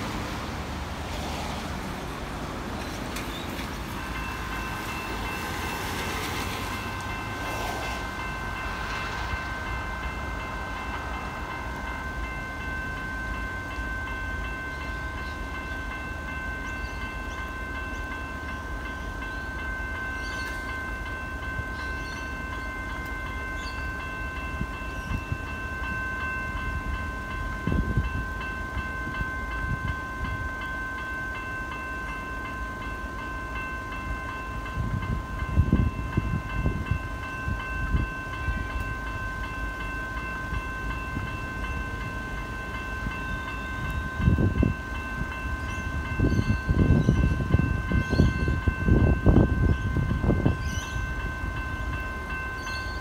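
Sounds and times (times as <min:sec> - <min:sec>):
level crossing bells ringing: 0:03.8 - 0:53.0.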